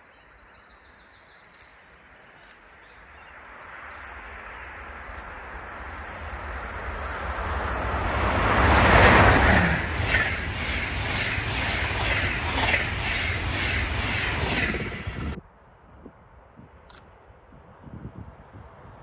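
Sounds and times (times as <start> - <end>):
train passing at speed: 3.2 - 19.0
train wheels clattering: 8.1 - 15.4.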